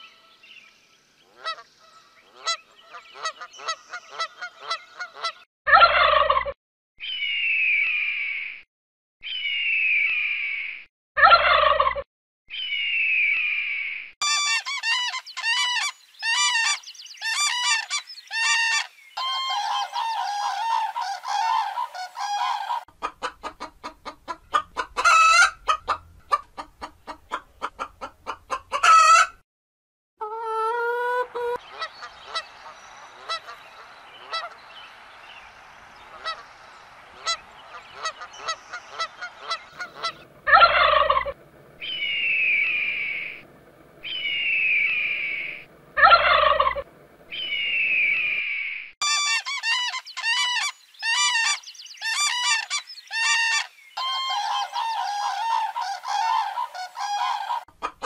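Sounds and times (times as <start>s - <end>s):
birds calling: 0.0s - 5.5s, 14.2s - 29.2s, 30.9s - 58.0s
geese honking: 1.3s - 1.7s, 2.3s - 6.2s, 14.2s - 23.6s, 30.2s - 34.7s, 36.0s - 41.4s, 46.0s - 46.9s, 49.0s - 58.0s
drawn-out falling bird calls: 14.2s - 22.9s, 30.7s - 58.0s.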